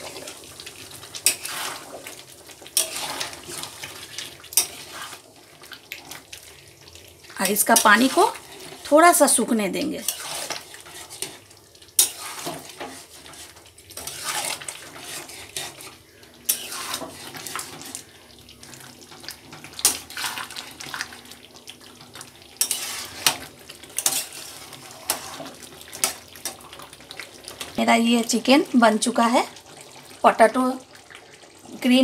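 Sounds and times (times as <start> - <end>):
curry simmering: 0.0 - 32.0
spatula scraping a metal pan: 1.2 - 2.0, 2.8 - 3.9, 4.5 - 5.2, 10.0 - 18.0, 22.6 - 26.6.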